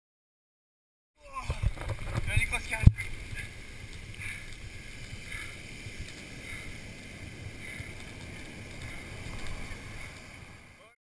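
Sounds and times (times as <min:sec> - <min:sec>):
muffled surf rumble: 0:01.2 - 0:11.0.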